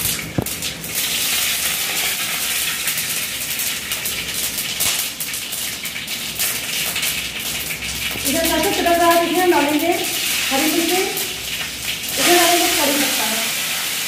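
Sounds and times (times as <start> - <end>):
sizzling and crackling in hot oil: 0.0 - 14.0.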